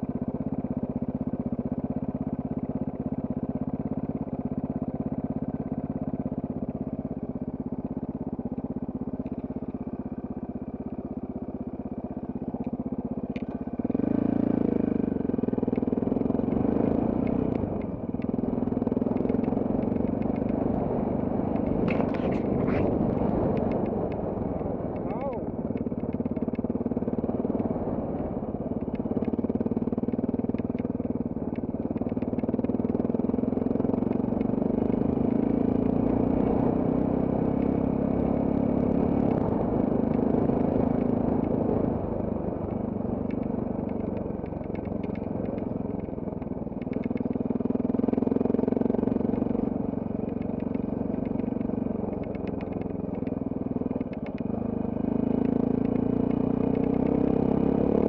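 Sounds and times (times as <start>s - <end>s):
motorcycle engine running: 0.0s - 58.0s
bike clicks and clatter: 12.0s - 27.1s, 28.8s - 36.0s, 42.7s - 57.3s.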